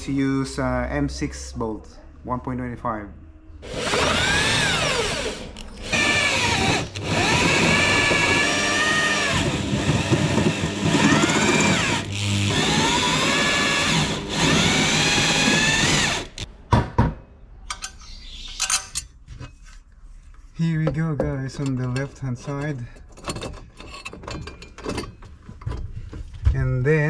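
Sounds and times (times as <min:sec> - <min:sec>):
electric drill whining through metal: 0:03.6 - 0:16.5.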